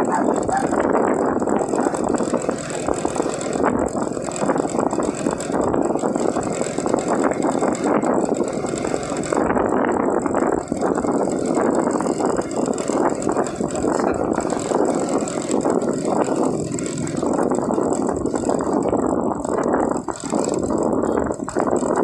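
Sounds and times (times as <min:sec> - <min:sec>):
scooter engine running: 0:00.0 - 0:22.0
wind on microphone: 0:00.0 - 0:22.0.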